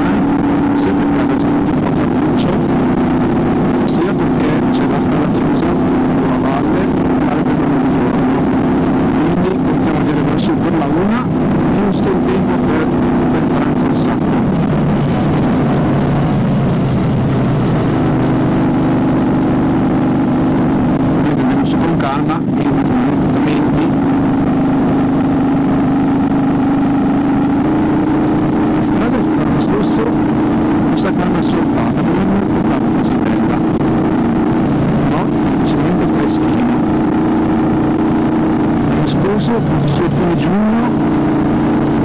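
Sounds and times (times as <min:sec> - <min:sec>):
motorcycle engine running: 0:00.0 - 0:42.0
wind rush: 0:00.0 - 0:42.0.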